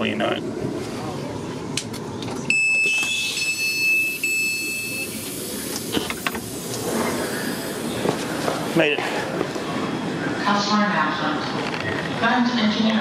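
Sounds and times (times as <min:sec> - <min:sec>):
high warning beep: 0:02.5 - 0:05.3
door gear hiss: 0:05.1 - 0:08.7.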